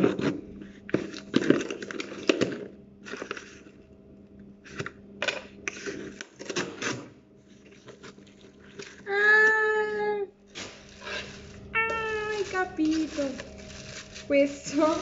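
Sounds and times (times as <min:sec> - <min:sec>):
plastic wrapping rustling: 0:10.4 - 0:15.0.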